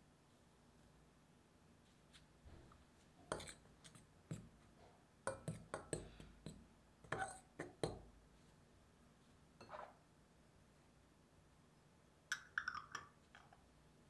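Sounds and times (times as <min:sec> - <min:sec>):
spoon stirring flour: 0:02.1 - 0:08.6
spoon clinking on glass bowl: 0:12.3 - 0:13.6.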